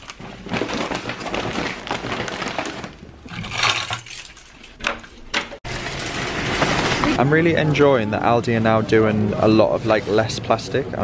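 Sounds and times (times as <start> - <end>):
objects clattering and rustling: 0.0 - 7.3.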